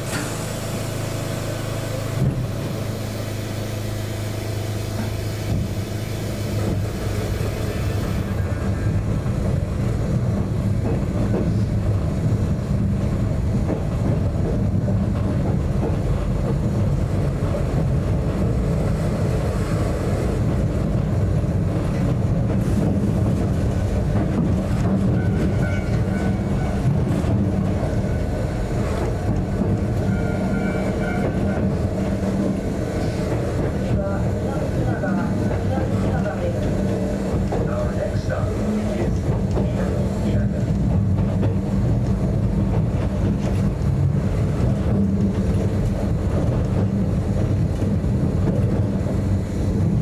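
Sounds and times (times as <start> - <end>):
train motor and gear hum: 0.0 - 50.0
wheels rumbling on rail: 0.0 - 50.0.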